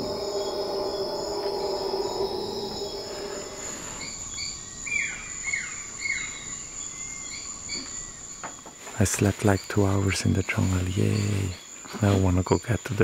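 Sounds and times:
monkeys howling: 0.0s - 4.3s
birds chirping: 0.0s - 12.8s
high insect drone: 0.0s - 13.0s.

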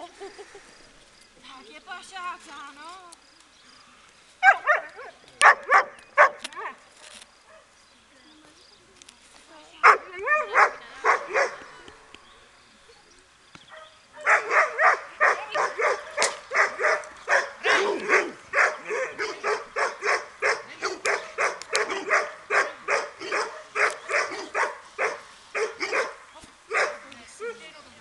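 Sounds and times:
dog barking rapidly: 4.4s - 6.4s, 14.2s - 27.0s.

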